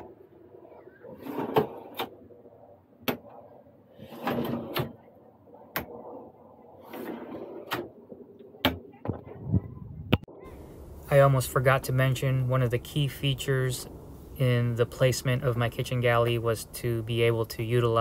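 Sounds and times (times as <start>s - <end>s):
cabinet drawers sliding shut: 4.0s - 5.0s.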